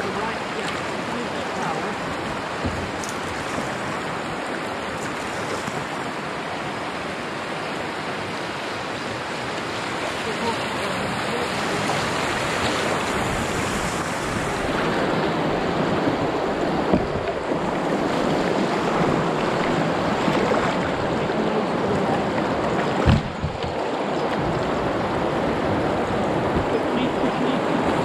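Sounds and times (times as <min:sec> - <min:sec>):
river water rushing: 0:00.0 - 0:28.0
short knocks: 0:16.9 - 0:17.4, 0:23.0 - 0:23.8.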